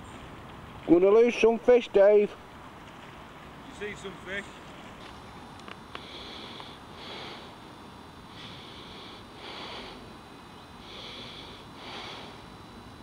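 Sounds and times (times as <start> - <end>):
person breathing: 5.9 - 7.6, 8.3 - 10.1, 10.8 - 12.6.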